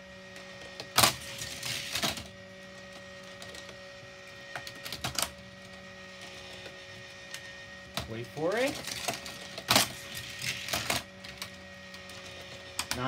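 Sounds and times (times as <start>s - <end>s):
toy motor humming: 0.0s - 13.0s
toy cars rattling on plastic track: 0.8s - 2.3s, 8.0s - 13.0s.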